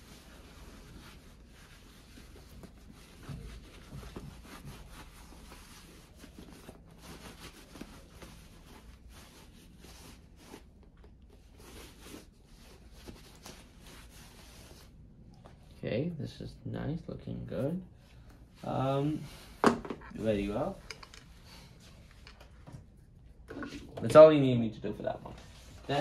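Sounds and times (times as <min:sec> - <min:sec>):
cloth rubbing on boot: 0:00.0 - 0:15.7.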